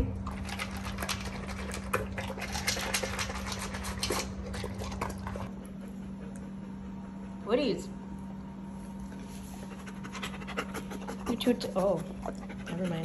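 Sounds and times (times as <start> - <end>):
dog crunching kibble: 0.2 - 5.5.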